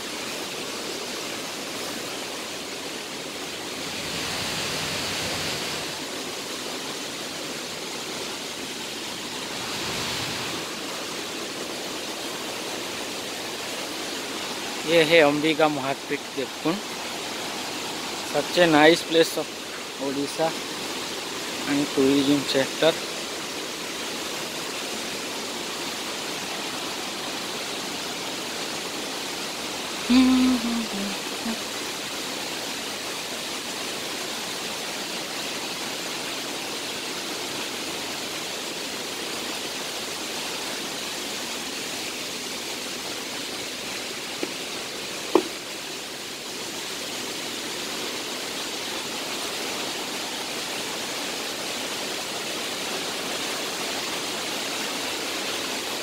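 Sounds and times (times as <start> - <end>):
waterfall rushing: 0.0 - 56.0
brief voice: 30.1 - 31.6.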